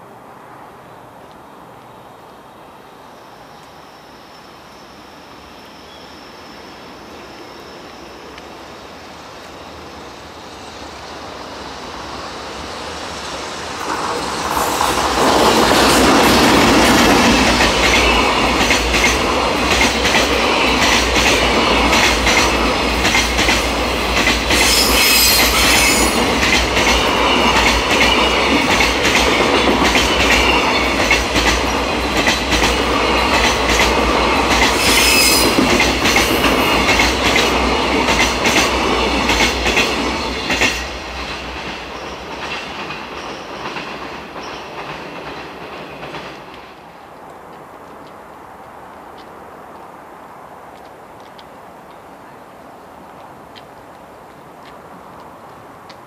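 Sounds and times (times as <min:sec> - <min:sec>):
freight train approaching: 0:00.0 - 0:56.0
high wheel squeal: 0:24.5 - 0:26.3, 0:34.7 - 0:36.7.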